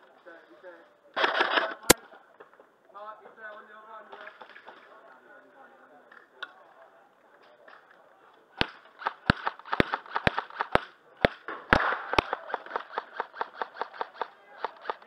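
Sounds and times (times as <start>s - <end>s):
airsoft gun cracks: 8.6s - 15.0s.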